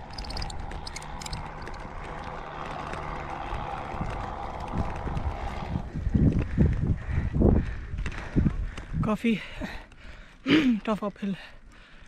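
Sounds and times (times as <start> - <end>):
wind buffeting microphone: 0.0 - 9.2
bike tyres rolling rumble: 0.0 - 10.6.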